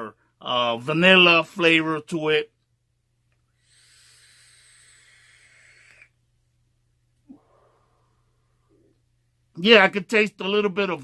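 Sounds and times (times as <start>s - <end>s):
soft hiss of air through vape: 3.3s - 9.1s
faint breath blowing out: 3.5s - 6.3s, 7.3s - 8.9s.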